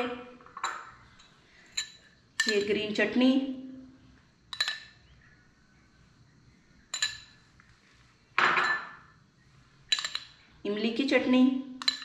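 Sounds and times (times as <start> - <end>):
dishware clatter: 0.5 - 1.0, 4.5 - 5.0, 6.9 - 7.4, 8.4 - 9.2, 9.9 - 10.3, 11.8 - 12.0
metal spoon clinking glass bowl: 0.6 - 2.8, 4.5 - 5.0, 6.9 - 7.4, 8.4 - 9.2, 9.9 - 10.4, 11.8 - 12.0.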